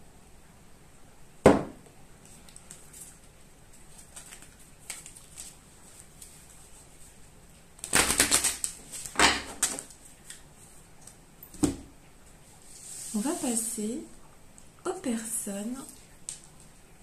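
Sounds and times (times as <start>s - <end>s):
cards being shuffled: 2.2s - 6.8s.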